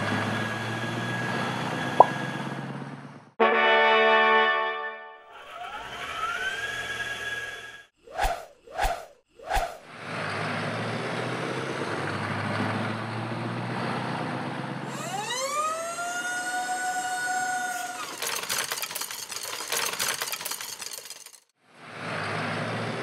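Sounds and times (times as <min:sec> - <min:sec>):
hydraulic whine: 0:14.8 - 0:18.2
toy bricks clattering: 0:17.9 - 0:21.5.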